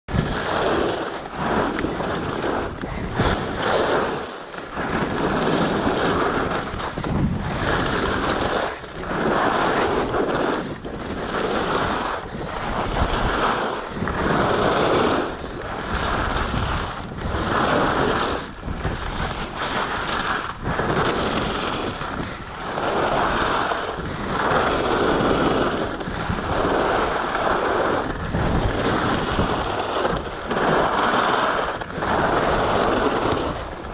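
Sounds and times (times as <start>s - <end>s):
skis scraping over snow: 0.1s - 33.9s
wind on microphone: 0.1s - 33.9s.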